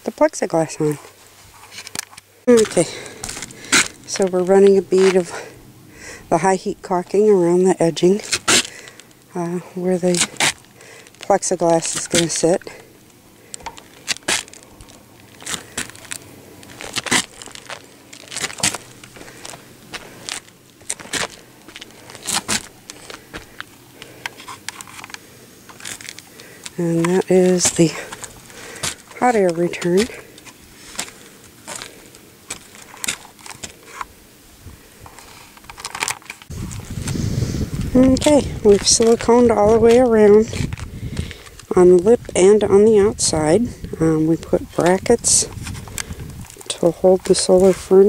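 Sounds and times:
handling clicks and rustles: 0:00.2 - 0:48.0
wind rumbling on microphone: 0:34.5 - 0:35.2, 0:36.5 - 0:48.0.

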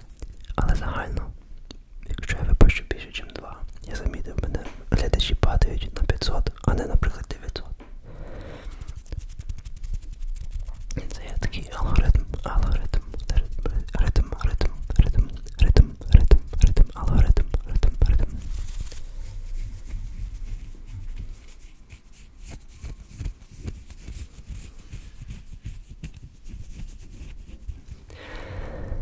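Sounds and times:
person whispering: 0:00.0 - 0:01.4, 0:02.0 - 0:09.2, 0:10.8 - 0:18.6
fingers scratching microphone: 0:08.5 - 0:18.5.

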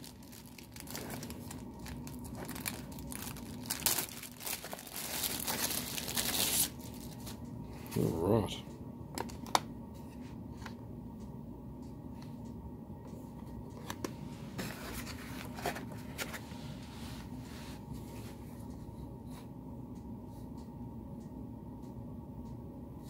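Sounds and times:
steady low hum: 0:00.0 - 0:23.0
cardboard box handling: 0:14.6 - 0:16.4.

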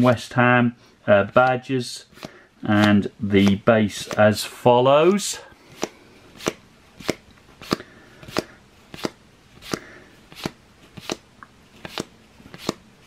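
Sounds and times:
trading cards snapping off stack: 0:02.2 - 0:04.3, 0:05.7 - 0:11.2, 0:11.8 - 0:12.8.

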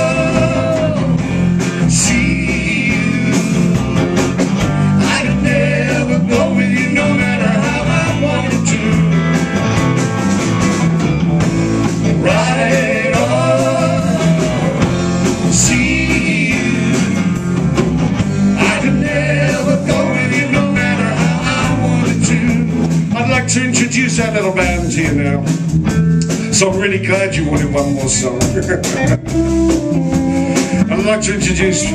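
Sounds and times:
person singing with vibrato: 0:00.0 - 0:03.7, 0:18.6 - 0:25.3
blues band playing live: 0:00.0 - 0:31.9.

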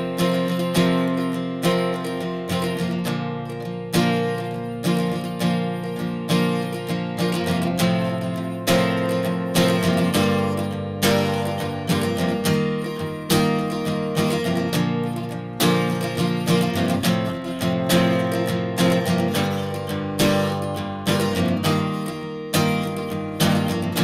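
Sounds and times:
strummed acoustic guitar: 0:00.0 - 0:24.0.

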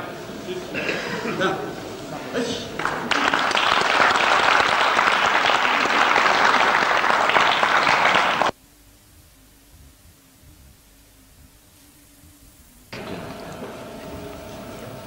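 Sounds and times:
audience applauding: 0:01.4 - 0:08.5.

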